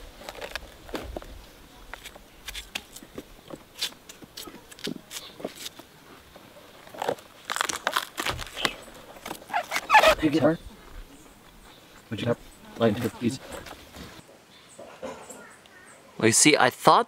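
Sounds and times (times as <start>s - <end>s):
dry palm leaves crackling and tearing: 0.0s - 3.0s, 3.7s - 5.9s, 6.7s - 10.2s.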